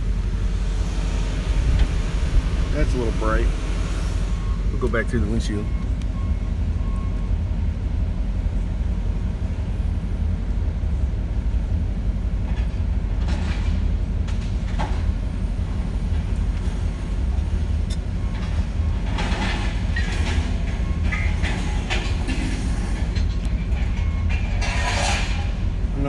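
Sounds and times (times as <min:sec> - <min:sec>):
low engine rumble: 0:00.0 - 0:26.0
scrap metal clanking and crashing: 0:12.5 - 0:15.1, 0:18.2 - 0:26.0.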